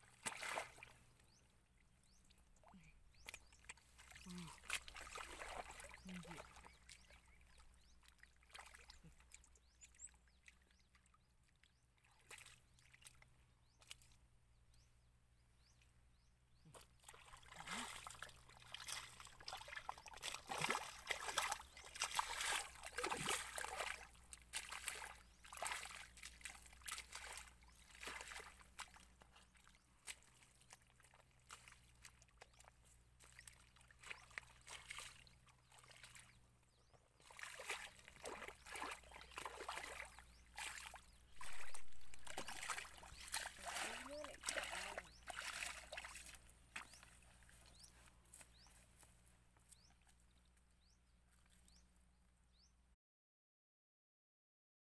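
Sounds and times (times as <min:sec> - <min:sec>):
mud sloshing and squelching: 0:00.0 - 0:01.1, 0:02.7 - 0:09.5, 0:11.4 - 0:14.2, 0:16.7 - 0:36.5, 0:37.2 - 0:49.8.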